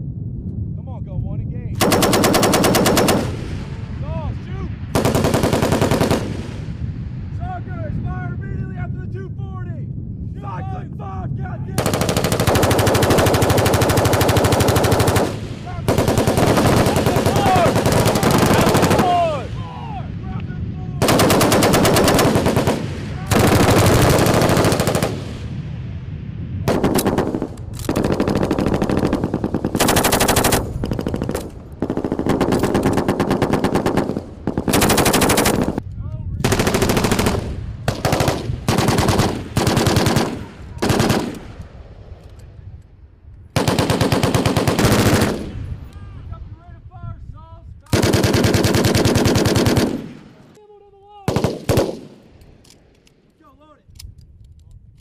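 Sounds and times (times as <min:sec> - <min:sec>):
machine gun bursts: 0:01.8 - 0:03.3, 0:05.0 - 0:06.3, 0:11.8 - 0:19.0, 0:21.0 - 0:25.2, 0:26.7 - 0:35.8, 0:36.4 - 0:41.4, 0:43.6 - 0:45.5, 0:47.9 - 0:50.0.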